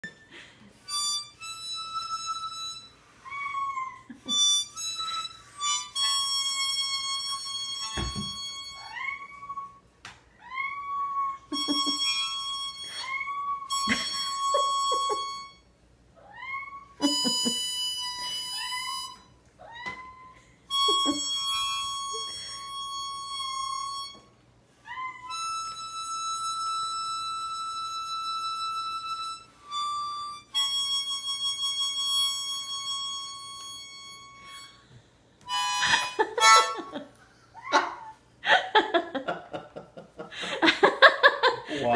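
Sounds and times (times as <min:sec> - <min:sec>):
harmonica long notes: 0:00.0 - 0:03.2, 0:04.1 - 0:09.0, 0:11.5 - 0:15.7, 0:17.0 - 0:19.3, 0:20.7 - 0:24.3, 0:25.3 - 0:37.1.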